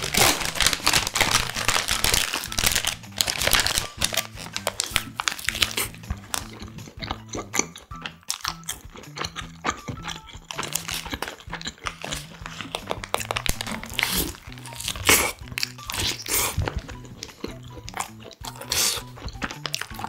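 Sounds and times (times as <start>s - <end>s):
paper wrapper crinkling: 0.0s - 6.5s, 10.6s - 16.8s
biting and chewing sandwich: 0.0s - 20.0s
soft background music: 0.0s - 20.0s.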